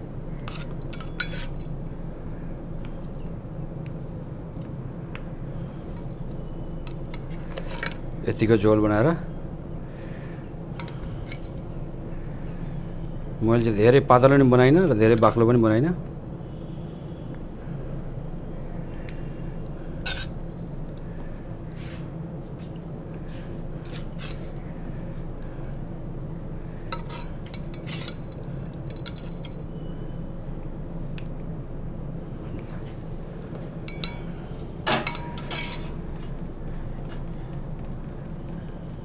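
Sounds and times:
steady low hum: 0.0 - 39.0
metal ladle clinking and scraping: 0.5 - 1.8, 20.0 - 20.3, 26.9 - 29.6, 33.9 - 34.3, 34.9 - 36.0.

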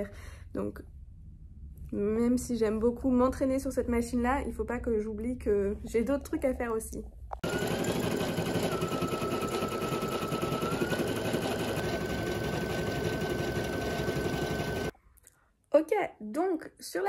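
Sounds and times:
embroidery machine needle clatter: 7.4 - 14.9.

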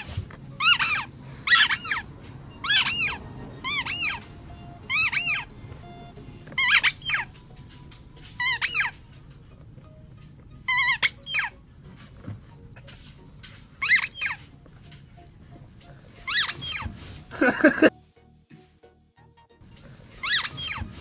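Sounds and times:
squeaky dog toy squeaking: 0.0 - 9.5, 10.5 - 11.7, 13.8 - 14.6, 16.2 - 17.4, 20.1 - 21.0.

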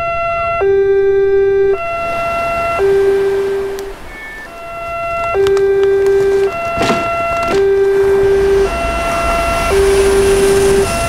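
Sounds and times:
two-tone siren: 0.0 - 11.0
passing train rumble and hiss: 1.9 - 11.0
knock with falling swoop: 5.4 - 7.8.

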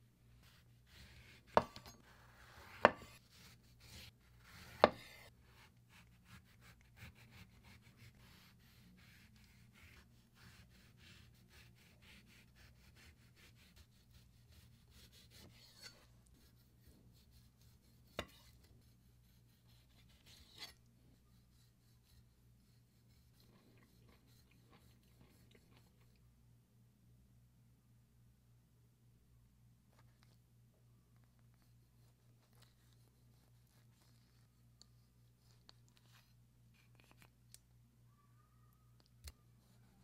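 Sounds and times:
knife slicing orange peel: 0.4 - 20.8.

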